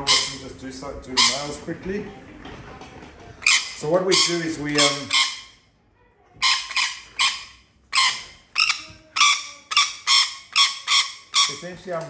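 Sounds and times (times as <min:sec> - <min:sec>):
lorikeet screeching: 0:00.0 - 0:00.5, 0:01.2 - 0:01.6, 0:03.4 - 0:05.6, 0:06.4 - 0:11.7.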